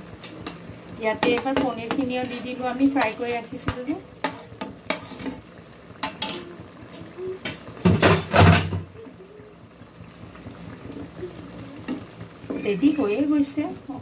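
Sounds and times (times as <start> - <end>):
gravy simmering: 0.0 - 14.0.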